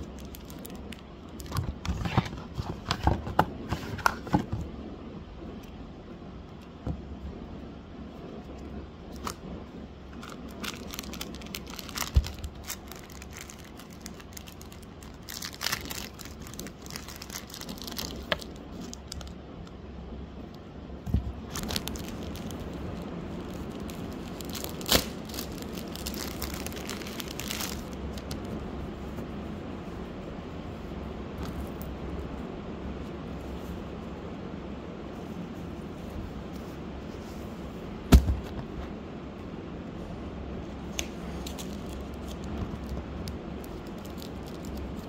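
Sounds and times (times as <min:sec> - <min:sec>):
steady low hum: 0:00.0 - 0:45.0
cardboard box rustling and crinkling: 0:01.4 - 0:04.6, 0:10.2 - 0:19.3, 0:21.1 - 0:28.6.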